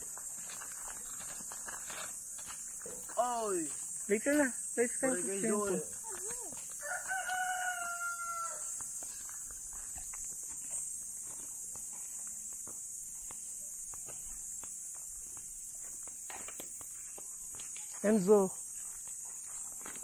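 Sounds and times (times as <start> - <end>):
footsteps on dirt path: 0.0 - 20.0
high-pitched insect buzz: 0.0 - 20.0
rooster crowing: 6.7 - 8.9.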